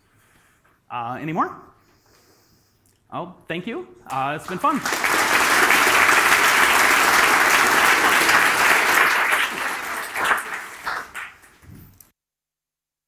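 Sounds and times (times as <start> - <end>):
audience applauding: 4.1 - 11.7.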